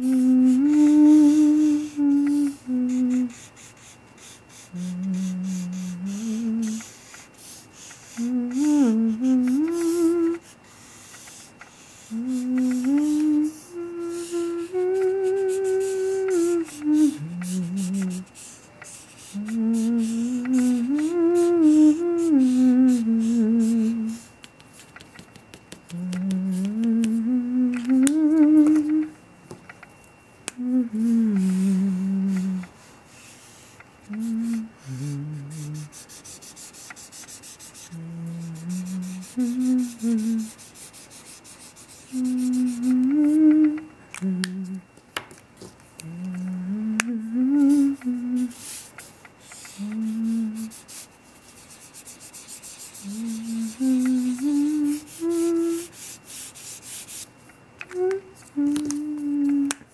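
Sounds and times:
person humming a slow tune: 0:00.0 - 0:10.5, 0:11.7 - 0:24.4, 0:25.8 - 0:29.2, 0:30.5 - 0:32.8, 0:34.0 - 0:36.1, 0:37.0 - 0:45.0, 0:46.0 - 0:48.9, 0:49.5 - 0:51.6, 0:52.2 - 0:56.5, 0:57.8 - 0:59.9
marker rubbing on paper: 0:03.3 - 0:05.9, 0:06.7 - 0:08.2, 0:10.8 - 0:12.1, 0:18.2 - 0:19.3, 0:35.8 - 0:42.5, 0:48.5 - 0:49.8, 0:50.6 - 0:53.4, 0:55.8 - 0:57.3.

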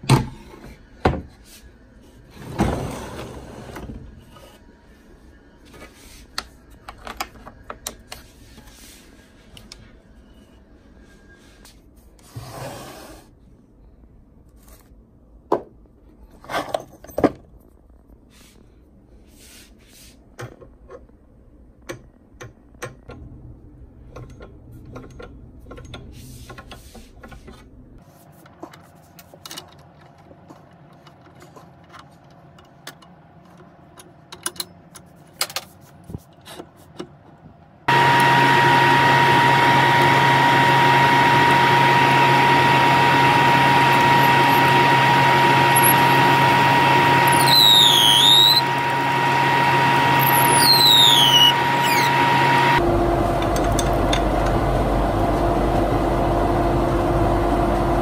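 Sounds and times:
lathe running with steady whine: 0:37.9 - 0:58.0
drill bit boring into wood: 0:43.2 - 0:52.8.

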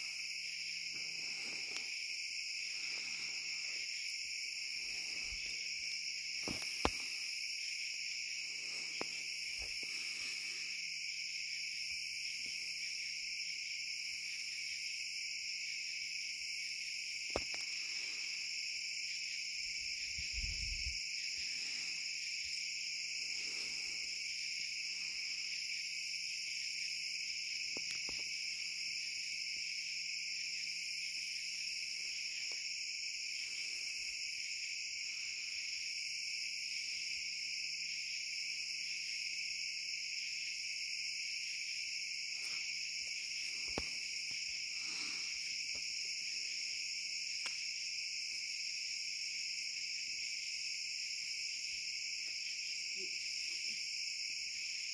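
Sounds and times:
crickets and insects trilling: 0:00.0 - 0:54.9.

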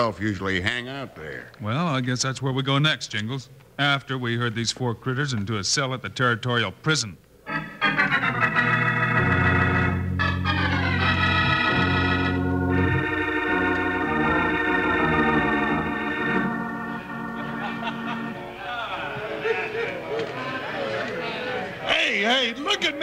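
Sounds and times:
held organ chords: 0:07.4 - 0:20.8.

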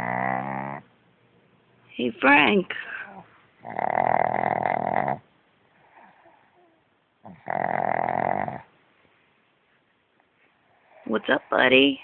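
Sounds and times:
dog snoring: 0:00.0 - 0:00.9, 0:03.6 - 0:08.7.

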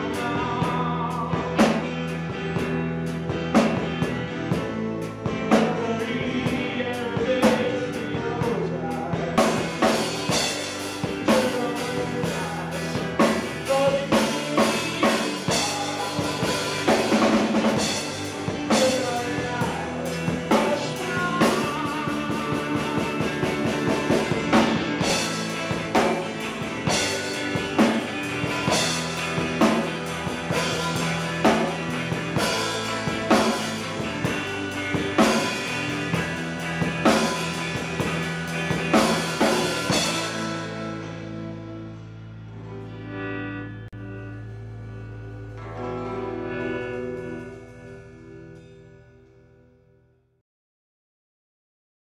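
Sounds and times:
person singing: 0:00.0 - 0:01.9, 0:04.7 - 0:38.1
drum kit: 0:00.0 - 0:42.6
electric guitars: 0:00.0 - 0:50.0
bass guitar: 0:00.0 - 0:50.4.

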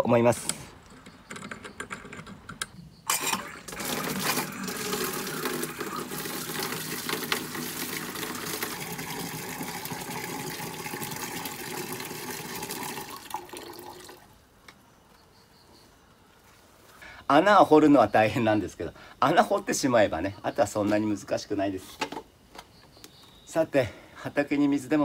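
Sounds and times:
water filling a plastic watering can: 0:03.1 - 0:14.4.

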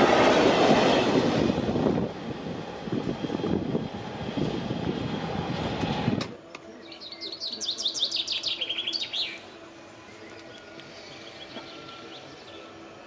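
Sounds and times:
loud rumbling noise: 0:00.0 - 0:06.3
songbird singing: 0:06.4 - 0:13.0.

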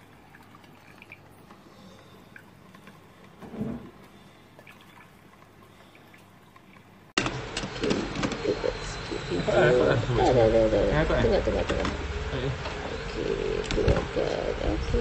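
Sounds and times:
water dripping and gurgling: 0:00.0 - 0:07.2.

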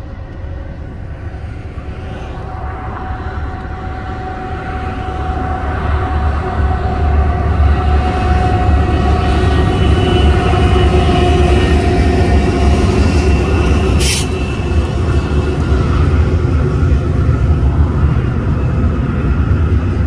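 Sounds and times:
locomotive engine rumble: 0:00.0 - 0:20.0
air hiss: 0:14.0 - 0:14.4.

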